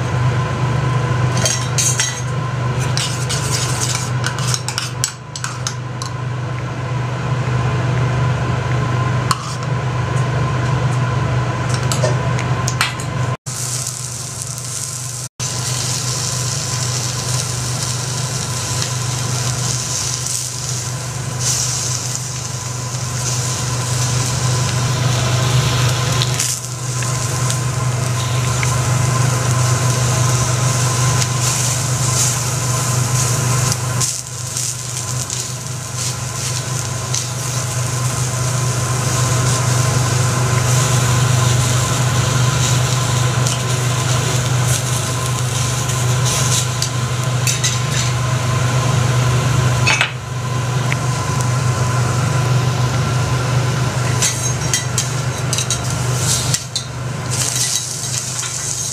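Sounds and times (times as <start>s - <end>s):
steady low hum: 0.0s - 58.9s
food sizzling on a griddle: 2.8s - 4.9s, 13.5s - 48.5s, 54.0s - 58.9s.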